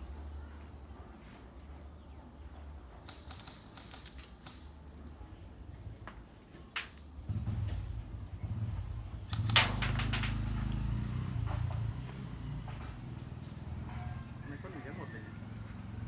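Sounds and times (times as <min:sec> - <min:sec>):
airsoft gun shots: 0:09.3 - 0:10.5.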